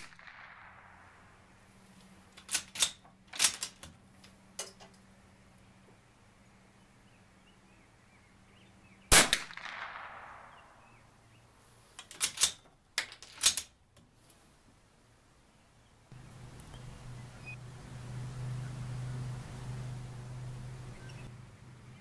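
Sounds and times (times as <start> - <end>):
rifle shot: 0.0 - 1.4, 9.1 - 10.9
rifle bolt metallic clicks: 2.4 - 4.0, 12.0 - 13.7.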